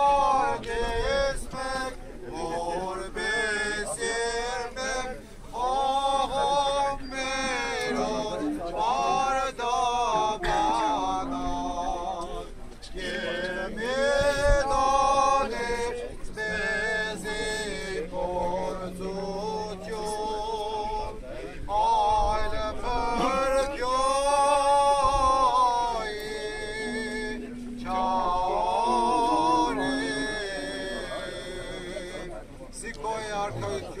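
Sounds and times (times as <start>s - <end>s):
man chanting a hymn: 0.0s - 34.0s
low held drone note: 16.4s - 20.8s, 25.9s - 32.2s.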